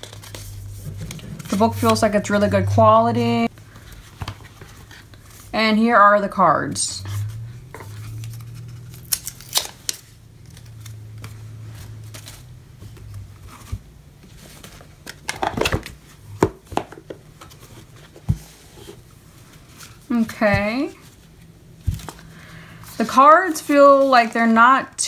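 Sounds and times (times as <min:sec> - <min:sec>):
card stock rustling: 0:00.0 - 0:02.5, 0:03.4 - 0:05.5, 0:07.0 - 0:20.0
low steady hum: 0:00.0 - 0:25.0.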